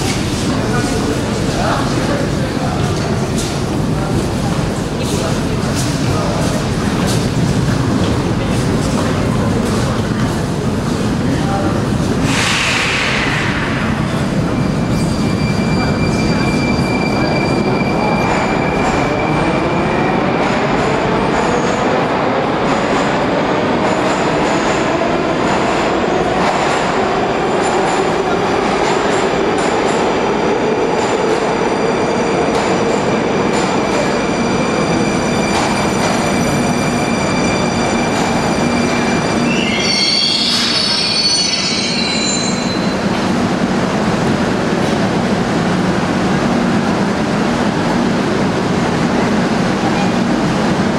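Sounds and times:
train rumble: 0:00.0 - 0:39.7
wheel squeal: 0:35.3 - 0:43.0.

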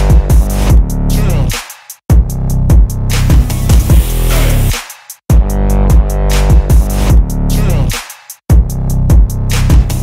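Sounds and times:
electronic dance music: 0:03.3 - 0:05.0.

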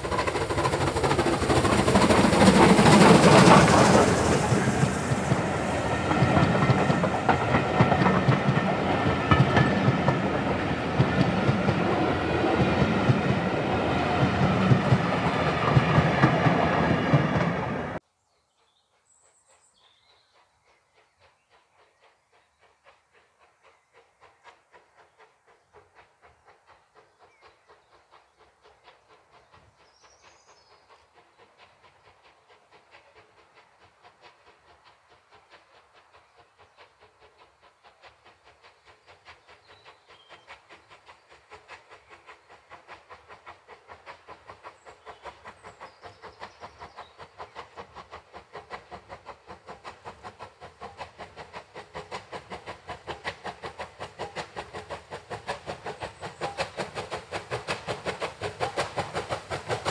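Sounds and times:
steam locomotive exhaust beats: 0:00.0 - 0:18.0, 0:18.9 - 0:59.9.

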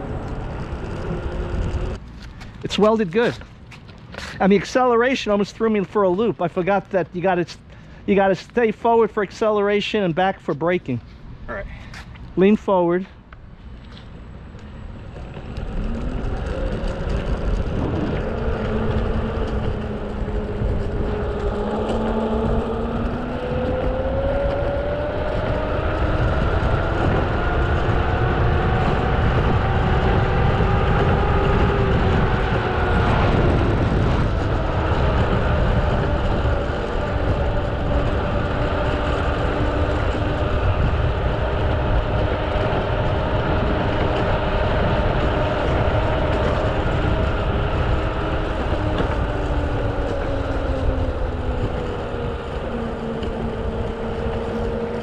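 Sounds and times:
low road rumble: 0:00.0 - 0:55.0
electric motor whine: 0:14.6 - 0:55.0.

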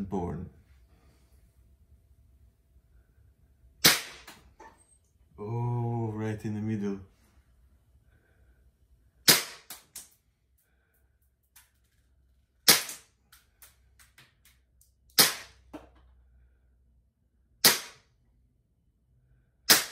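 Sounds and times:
pistol shots cracking: 0:03.8 - 0:04.4, 0:09.2 - 0:10.0, 0:12.6 - 0:13.1, 0:15.2 - 0:15.6, 0:17.6 - 0:18.0.

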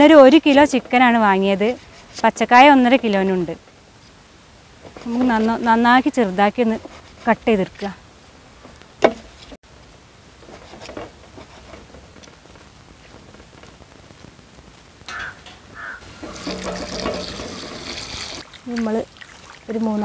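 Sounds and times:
water pouring and splashing: 0:16.0 - 0:20.0.

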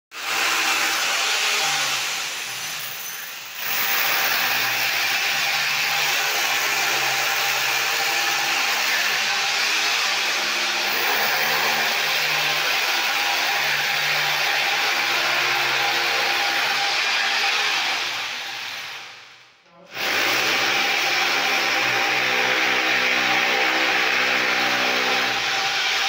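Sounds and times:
electric drill boring into wood: 0:00.2 - 0:19.2, 0:19.9 - 0:26.0.

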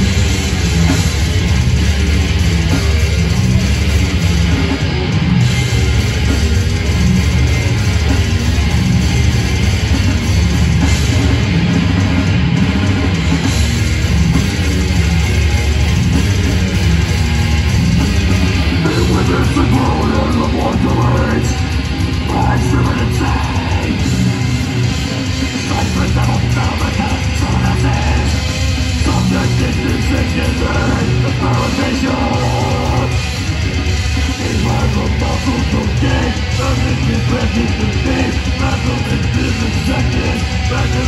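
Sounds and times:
death metal band playing: 0:00.0 - 0:41.0
growled vocals: 0:18.4 - 0:33.3.

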